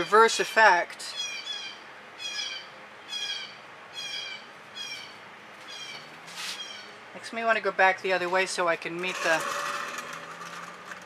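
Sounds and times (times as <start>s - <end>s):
songbird chirping: 1.1s - 7.0s.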